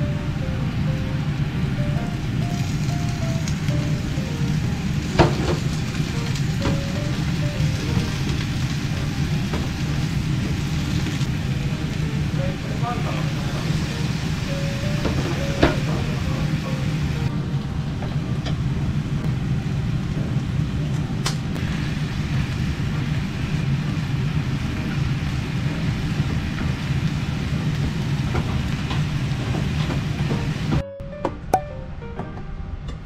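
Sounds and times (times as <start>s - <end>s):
food sizzling in frying pan: 0.7s - 17.3s, 21.6s - 30.8s.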